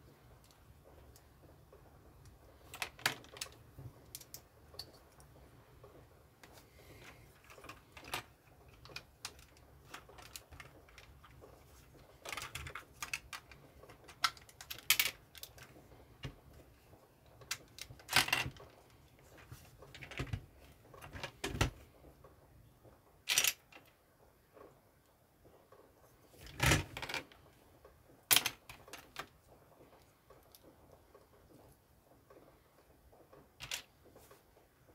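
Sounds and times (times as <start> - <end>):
plastic bricks clicking: 7.4 - 16.4, 23.3 - 23.9, 28.3 - 29.3.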